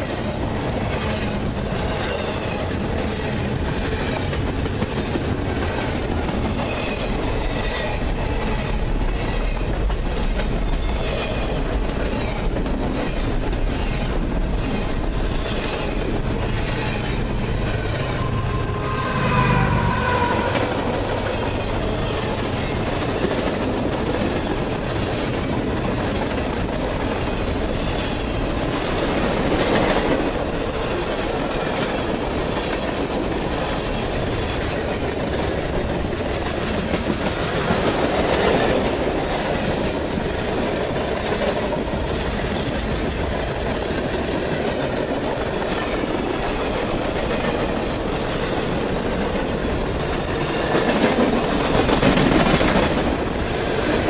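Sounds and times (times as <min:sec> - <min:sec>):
freight train wheels rumbling on rails: 0:00.0 - 0:54.0.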